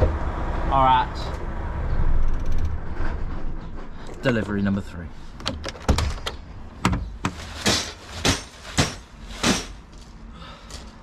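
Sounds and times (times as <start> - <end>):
sharp knocks: 6.8 - 9.8.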